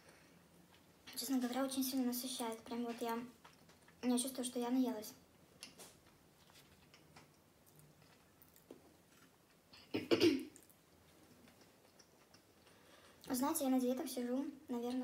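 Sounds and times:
woman clearing her throat: 9.8 - 10.6.

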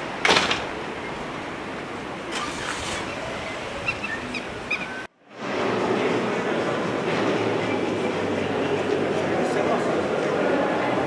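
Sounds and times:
outdoor background noise: 0.0 - 11.0.

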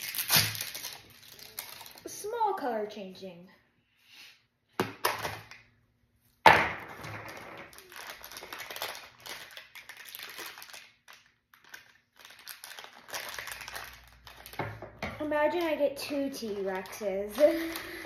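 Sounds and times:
wrapper crinkling and rustling: 0.0 - 2.4, 7.1 - 18.0.

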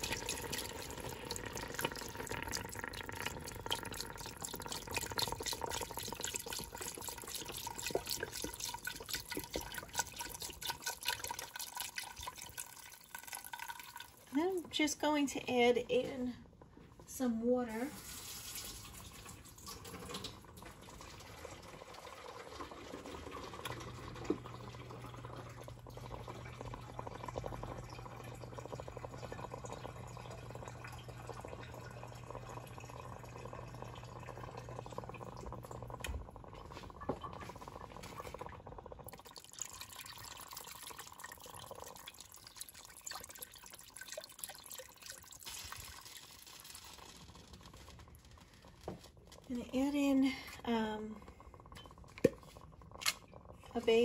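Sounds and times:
water pouring into a pot: 0.0 - 15.6, 17.6 - 54.0
low steady hum: 23.6 - 46.0.

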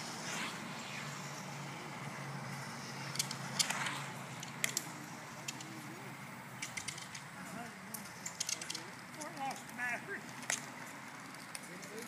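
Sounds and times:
ducted-fan car whooshing past: 0.0 - 7.2.

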